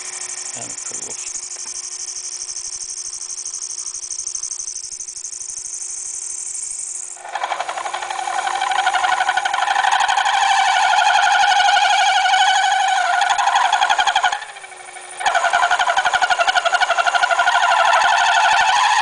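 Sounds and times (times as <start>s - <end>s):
lathe tool squealing on metal: 16.9s - 19.0s.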